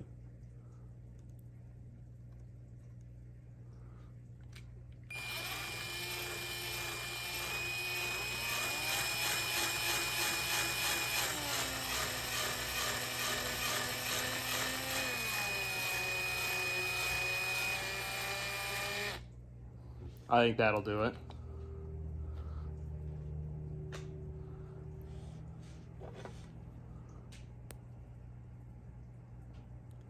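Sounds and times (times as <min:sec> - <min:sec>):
cordless drill motor running: 0:05.1 - 0:19.2.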